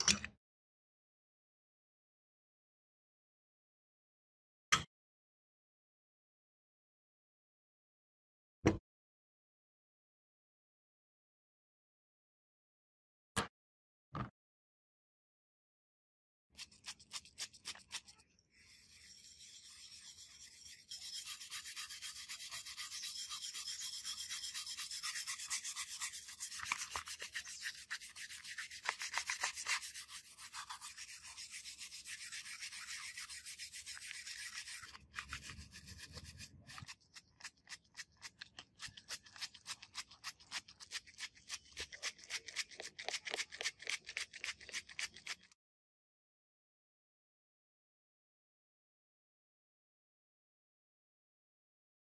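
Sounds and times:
stiff brush scrubbing metal: 0:16.6 - 0:45.4.

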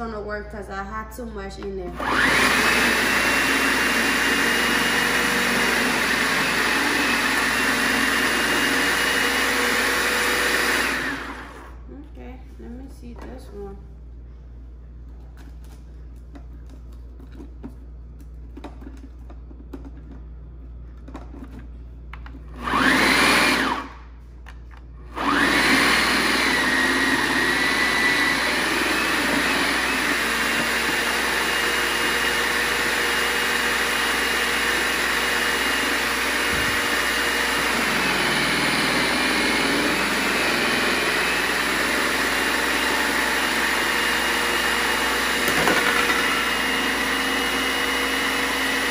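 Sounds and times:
food processor motor whining: 0:01.9 - 0:11.8, 0:22.5 - 0:24.1, 0:25.0 - 0:48.9.

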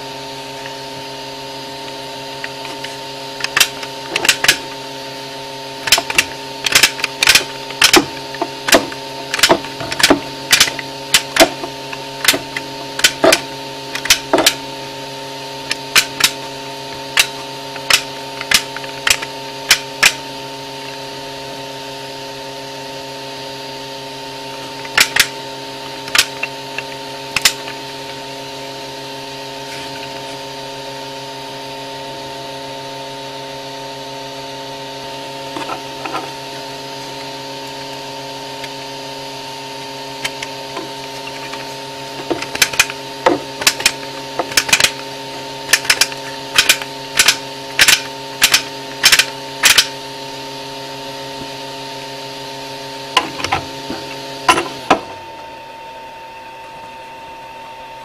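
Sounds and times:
steady multi-tone hum: 0:00.0 - 0:58.0
ratchet wrench clicking: 0:02.5 - 0:04.8, 0:05.8 - 0:14.6, 0:15.7 - 0:16.4, 0:17.2 - 0:20.2, 0:24.8 - 0:25.4, 0:26.0 - 0:27.8, 0:40.2 - 0:45.1, 0:45.7 - 0:50.0.

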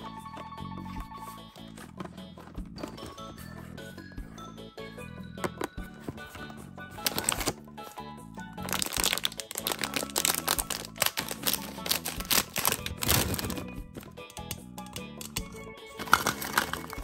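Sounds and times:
background music: 0:00.0 - 0:17.0
plastic bag crinkling: 0:07.0 - 0:07.6, 0:08.6 - 0:14.1, 0:16.0 - 0:17.0
fingernail clicks: 0:14.2 - 0:15.6.

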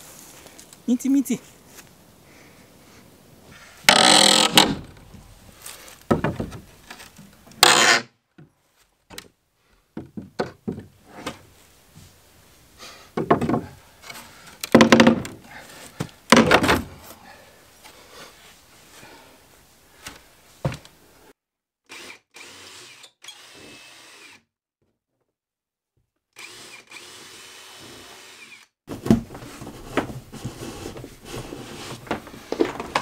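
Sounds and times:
wooden boards pried with crowbar: 0:03.9 - 0:05.0, 0:06.1 - 0:08.0, 0:14.6 - 0:15.4, 0:16.3 - 0:17.0.

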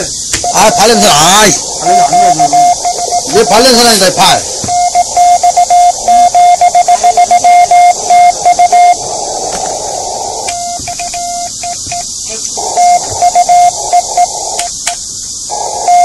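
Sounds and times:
morse code tone: 0:00.0 - 0:09.0, 0:10.5 - 0:14.4, 0:15.5 - 0:16.0
radio hiss: 0:00.0 - 0:16.0.

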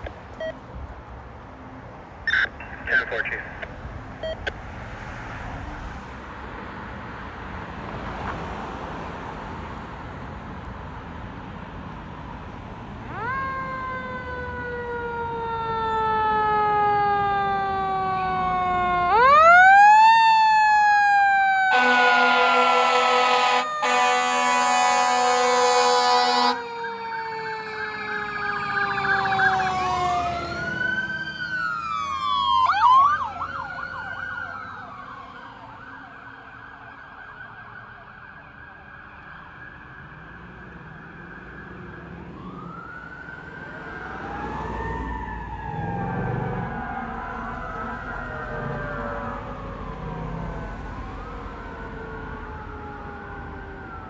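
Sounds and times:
fire engine siren: 0:12.2 - 0:54.0
wailing siren sweeps: 0:13.0 - 0:54.0
air horn blasting: 0:21.7 - 0:26.6.

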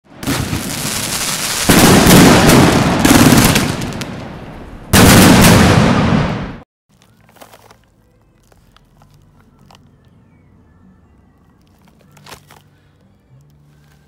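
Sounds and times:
fireworks launches and bursts: 0:00.1 - 0:06.6.

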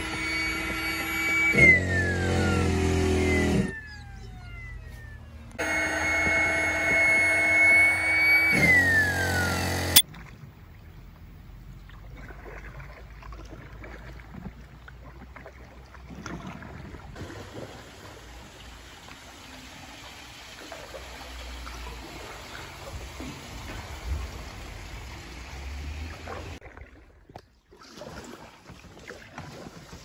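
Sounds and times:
electric air pump whine: 0:00.0 - 0:10.0
river water washing: 0:17.2 - 0:26.6.

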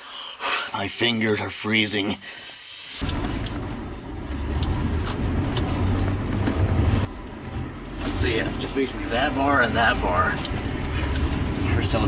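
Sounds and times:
car engine and road noise: 0:02.7 - 0:12.0.

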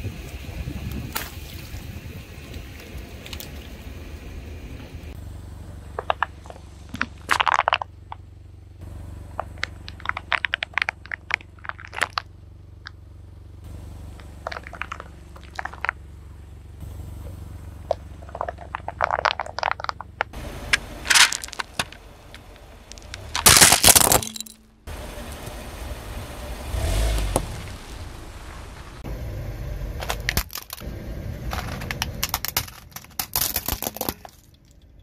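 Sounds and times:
low engine rumble: 0:00.0 - 0:35.0
tyre crushing brittle objects: 0:20.7 - 0:24.6, 0:30.0 - 0:30.8, 0:31.5 - 0:34.7.

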